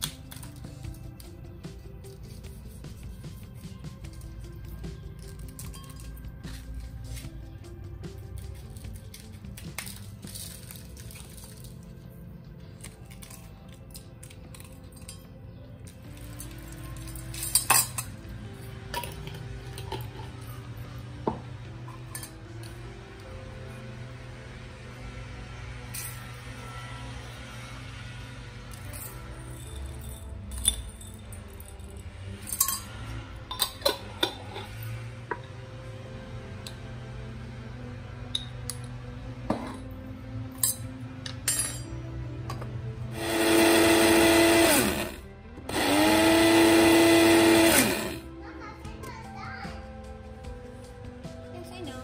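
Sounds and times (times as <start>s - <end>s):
background music: 0.0s - 52.0s
metal spoon clinking glass jars: 5.2s - 6.6s, 13.0s - 15.6s, 16.2s - 20.4s, 28.7s - 32.9s, 33.5s - 34.7s, 40.6s - 42.0s.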